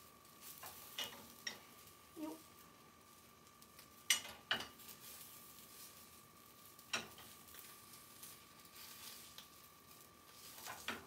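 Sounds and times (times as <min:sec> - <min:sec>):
egg sizzling in a pan: 0:00.0 - 0:11.0
chopsticks clicking on pan: 0:03.7 - 0:04.9, 0:06.8 - 0:07.5.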